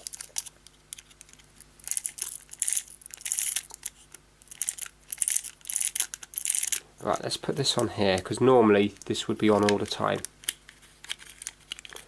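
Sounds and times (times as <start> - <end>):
toy car ratchet rasping and clicking: 4.6 - 6.8.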